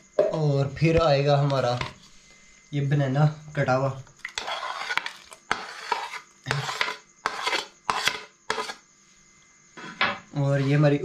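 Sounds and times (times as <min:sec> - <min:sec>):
spoon scraping a plate: 0:04.3 - 0:08.8, 0:09.8 - 0:11.0.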